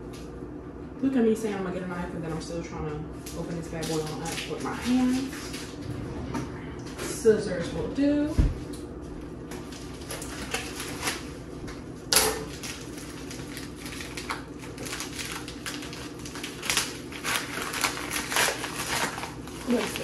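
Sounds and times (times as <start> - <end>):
plastic envelope crinkling: 3.3 - 5.8, 9.6 - 11.4, 12.4 - 20.0.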